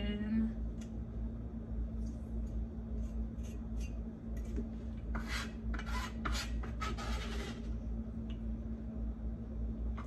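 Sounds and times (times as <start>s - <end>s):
knife scraping on cutting board: 5.1s - 7.7s.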